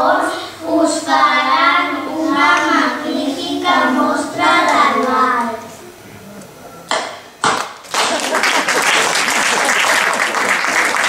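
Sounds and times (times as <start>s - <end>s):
children singing in unison: 0.0s - 5.7s.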